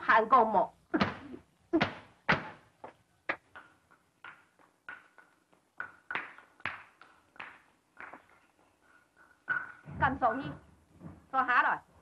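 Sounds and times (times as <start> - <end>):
sharp smacks of blows: 1.0 - 2.6.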